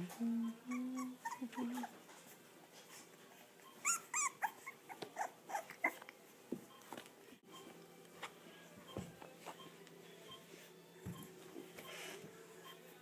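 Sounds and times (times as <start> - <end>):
puppies whimpering and squeaking: 0.4 - 6.2.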